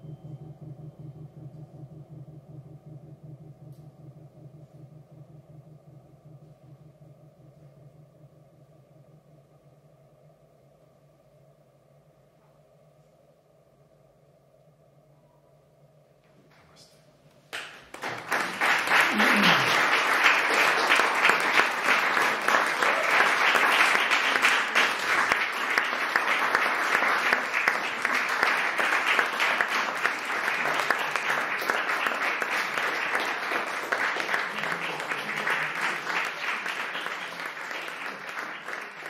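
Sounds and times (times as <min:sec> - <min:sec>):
audience applauding: 0:17.5 - 0:39.0.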